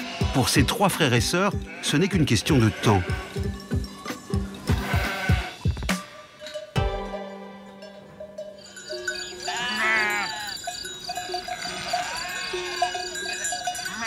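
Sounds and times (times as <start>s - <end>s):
sheep bleating: 0.0s - 3.5s, 4.7s - 5.7s, 9.4s - 10.6s, 11.4s - 13.2s, 13.8s - 14.0s
soft background music: 0.0s - 8.5s.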